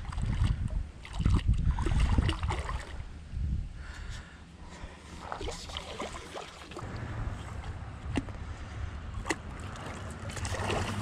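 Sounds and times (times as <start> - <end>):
wind rumbling on microphone: 0.0 - 4.3, 6.8 - 11.0
fish splashing in water: 9.2 - 11.0.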